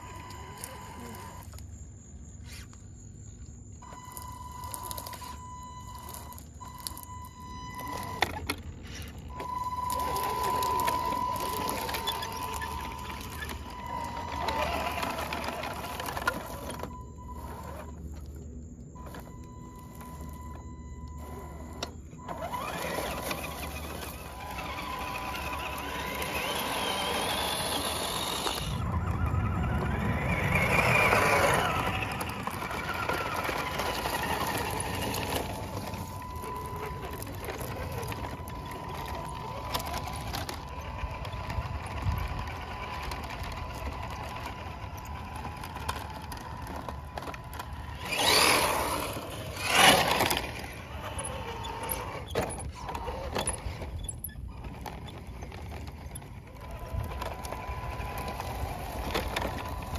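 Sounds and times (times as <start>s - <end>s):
electric motor and gears whining: 0.0s - 59.9s
tyres rustling through leaves: 9.2s - 18.3s, 21.2s - 59.9s.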